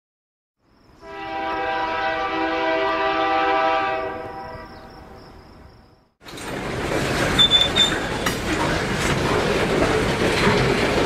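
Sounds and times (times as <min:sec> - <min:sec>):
train horn long chord: 0:01.0 - 0:04.9.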